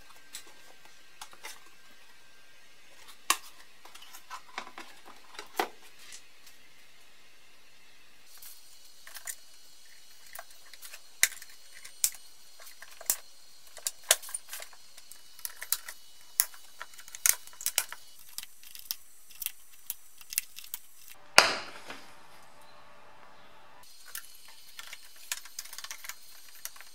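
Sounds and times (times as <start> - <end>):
plastic parts clicking and knocking: 3.0 - 6.2, 10.2 - 22.1, 24.0 - 26.9.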